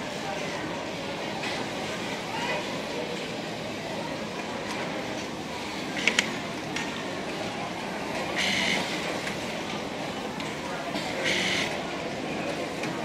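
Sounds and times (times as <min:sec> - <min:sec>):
sewing machines running: 0:08.1 - 0:10.2, 0:10.9 - 0:12.9.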